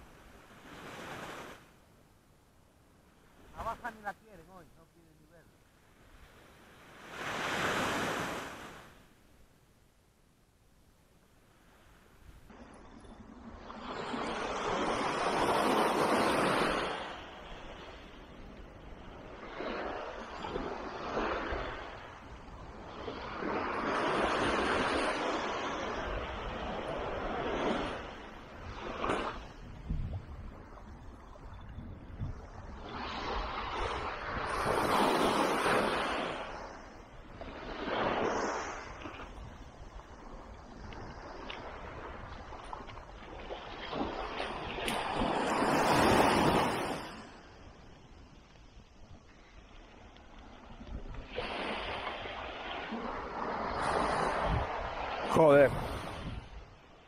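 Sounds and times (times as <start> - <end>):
small waves washing on sand: 0.0 - 1.8, 3.0 - 9.1, 11.5 - 57.0
wind on microphone: 12.2 - 57.0.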